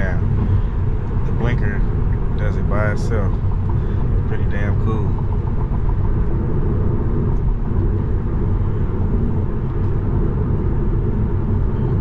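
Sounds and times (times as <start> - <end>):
road and tyre rumble: 0.0 - 12.0.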